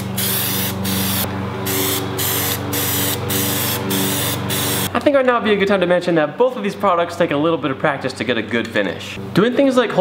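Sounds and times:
aerosol spray hissing: 0:00.0 - 0:04.9.

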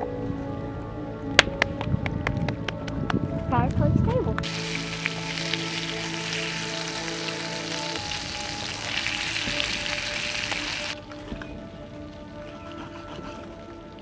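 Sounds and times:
food sizzling in a pan: 0:04.4 - 0:11.0
utensil turning food in pan: 0:04.4 - 0:11.0.

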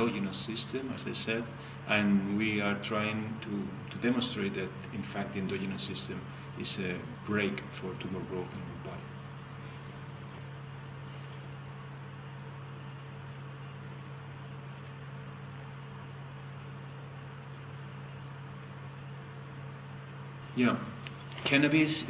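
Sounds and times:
low hum with hiss: 0:00.0 - 0:22.0.

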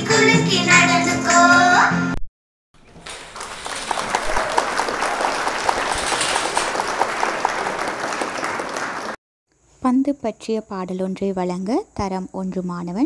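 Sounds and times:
audience applause: 0:03.0 - 0:09.2.

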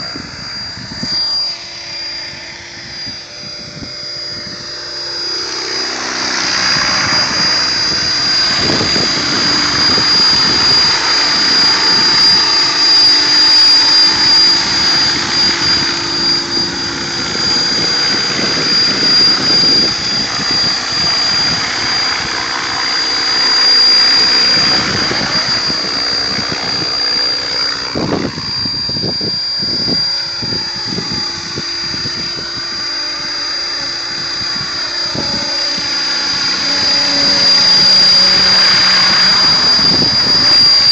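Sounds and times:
high-pitched motor whine: 0:00.0 - 0:40.9
rotor blades rushing: 0:00.0 - 0:40.9.

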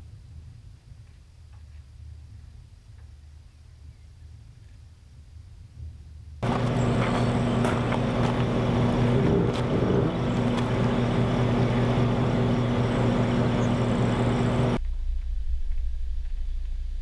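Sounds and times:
low rumble: 0:05.8 - 0:17.0
car engine idling: 0:06.4 - 0:14.8.

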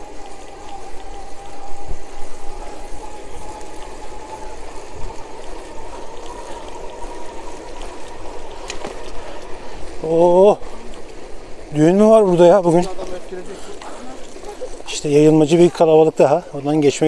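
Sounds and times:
electric motor whine: 0:00.0 - 0:11.4.

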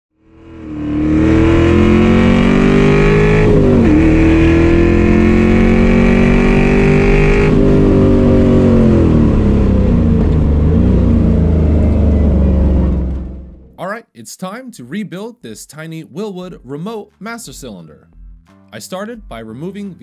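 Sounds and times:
race car engine at full throttle: 0:00.2 - 0:13.8.

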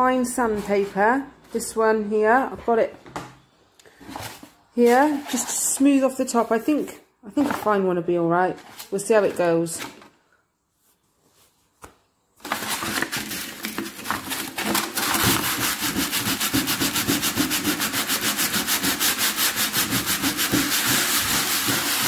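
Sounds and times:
sandpaper rubbing on wood: 0:15.2 - 0:22.0.

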